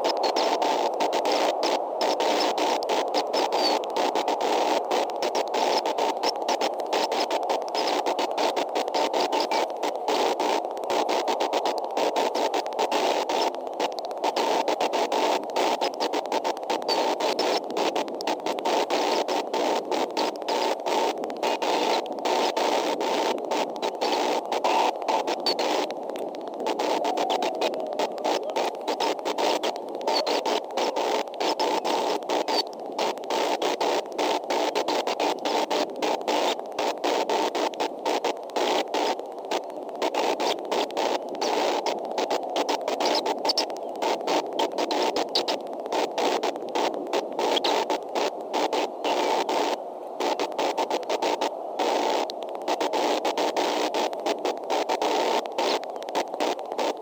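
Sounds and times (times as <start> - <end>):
static hiss: 0.0 - 57.0.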